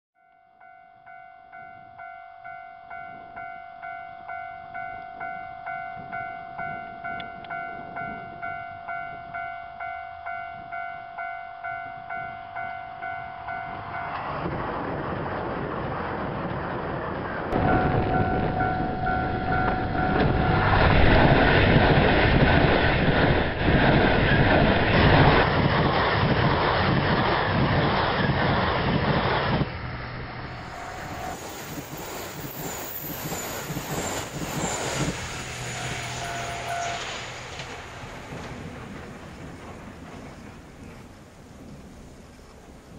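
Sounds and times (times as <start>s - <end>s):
train passing at speed: 1.5s - 42.9s
level crossing bell ringing: 17.6s - 20.8s.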